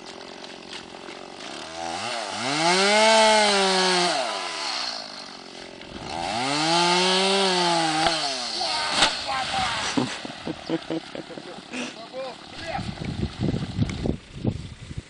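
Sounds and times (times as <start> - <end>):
tree trunk creaking: 0.0 - 2.7, 4.5 - 9.3.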